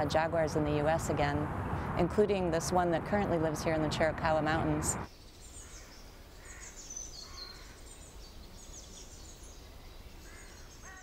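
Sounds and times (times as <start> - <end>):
low wind rumble: 0.0 - 5.1
faint high bird chirps: 5.1 - 11.0.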